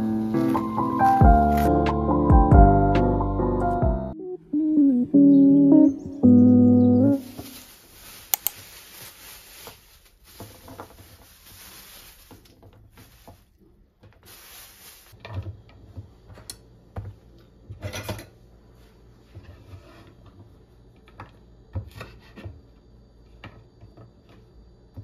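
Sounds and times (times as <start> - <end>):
plastic bag rustling: 0.0 - 1.7, 7.2 - 15.2.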